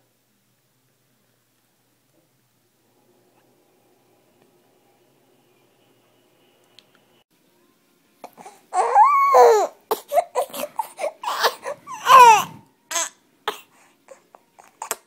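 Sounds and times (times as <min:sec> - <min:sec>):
baby whimpering: 0:08.2 - 0:15.0
baby crying: 0:08.3 - 0:15.0.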